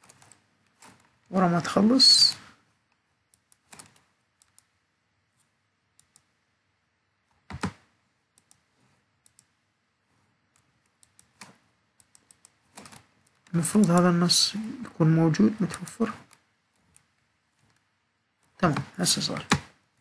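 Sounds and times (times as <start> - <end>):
mouse and keyboard clicks: 0.0 - 1.2, 3.3 - 4.8, 5.4 - 6.3, 7.4 - 9.6, 10.5 - 14.1.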